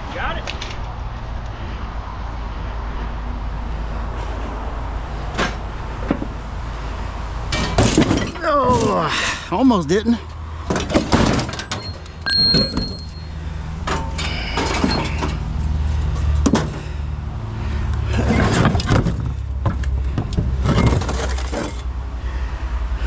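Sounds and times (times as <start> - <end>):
scrap metal clanking: 7.5 - 9.1, 10.6 - 17.0, 18.1 - 21.9.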